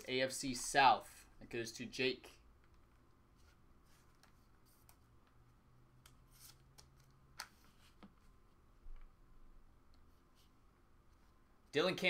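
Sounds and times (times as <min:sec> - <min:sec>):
trading cards rustling and clicking: 0:02.6 - 0:08.3.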